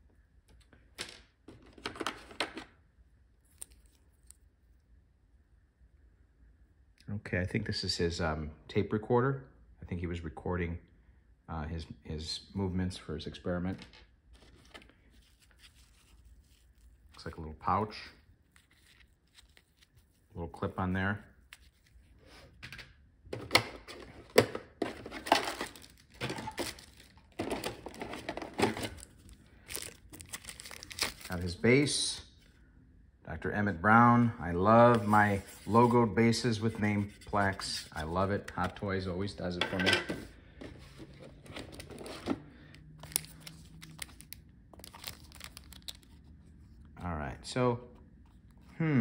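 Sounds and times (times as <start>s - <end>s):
plastic bags crinkling: 24.8s - 31.6s, 43.0s - 46.2s.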